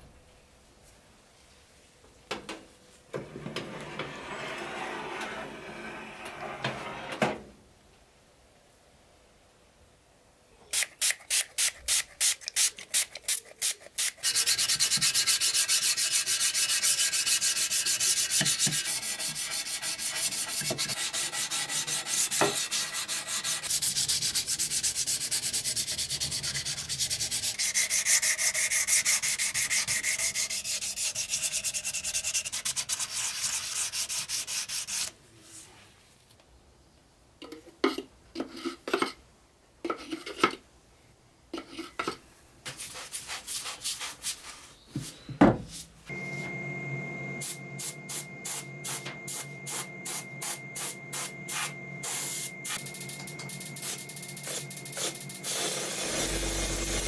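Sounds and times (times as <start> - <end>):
sandpaper sanding metal: 11.3 - 35.1.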